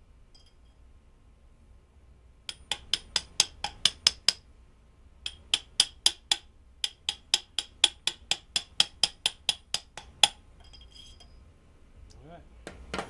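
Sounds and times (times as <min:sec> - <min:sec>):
hammer tapping steel pipe: 0:02.5 - 0:04.4, 0:05.2 - 0:10.8.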